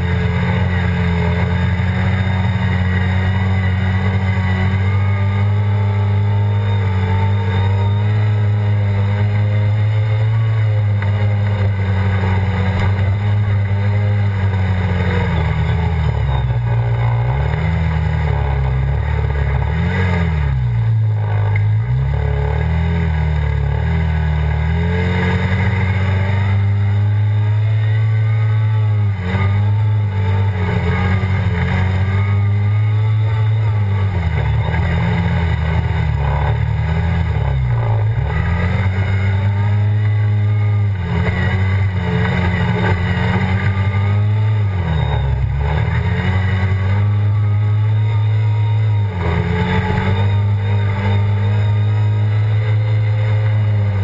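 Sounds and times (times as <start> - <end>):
quad bike engine running: 0.0 - 54.0.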